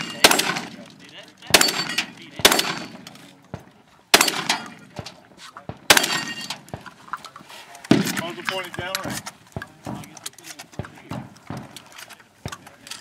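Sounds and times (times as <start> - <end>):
gunshots: 0.0 - 3.2, 4.1 - 6.9, 7.9 - 9.2
steel plates clanging: 0.0 - 3.2, 5.9 - 7.3.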